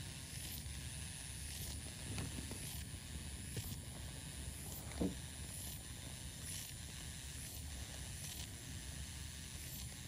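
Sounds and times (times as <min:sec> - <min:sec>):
motorized handpiece high whine: 0:00.0 - 0:10.0.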